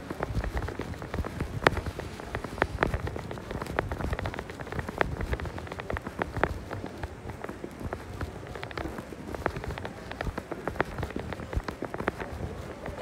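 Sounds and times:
footsteps: 0.0 - 13.0.

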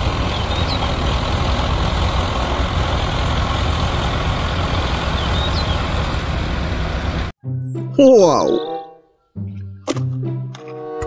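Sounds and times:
road roller diesel engines running: 0.0 - 7.3.

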